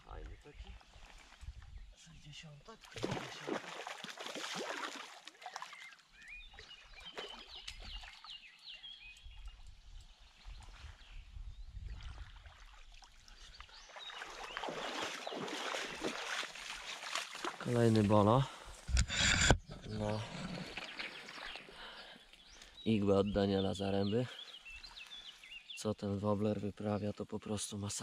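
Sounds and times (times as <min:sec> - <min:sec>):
river water splashing: 0:02.7 - 0:08.6, 0:11.9 - 0:18.3, 0:20.1 - 0:22.8
legs wading through water: 0:02.7 - 0:18.3, 0:19.9 - 0:22.8, 0:24.4 - 0:25.7.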